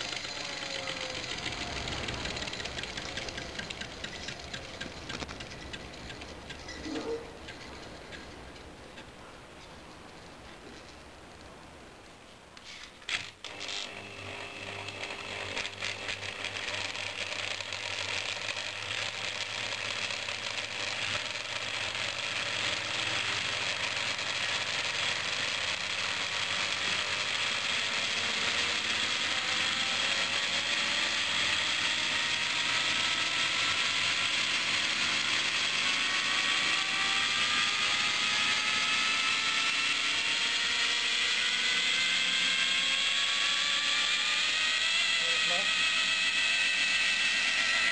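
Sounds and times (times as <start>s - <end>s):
rising mechanical whine: 0.0s - 8.4s, 13.4s - 47.9s
generator rig rattling: 0.0s - 9.2s.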